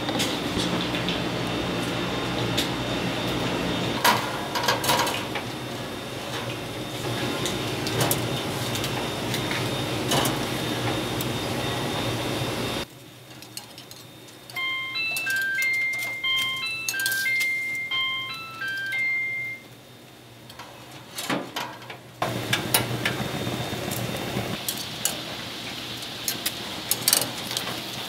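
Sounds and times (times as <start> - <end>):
steady machine hum: 0.0 - 20.7, 22.0 - 28.0
utensils and pans clinking: 4.0 - 5.4, 6.2 - 10.5, 13.3 - 19.6, 24.6 - 25.4
music: 14.6 - 19.6.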